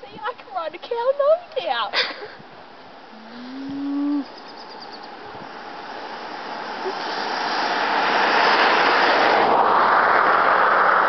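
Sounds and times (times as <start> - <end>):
rushing noise on microphone: 2.1 - 11.0
cow mooing: 3.1 - 4.4.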